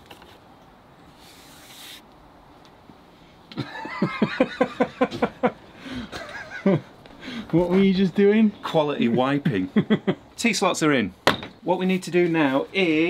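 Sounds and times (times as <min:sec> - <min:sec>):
person laughing: 0:03.6 - 0:06.9.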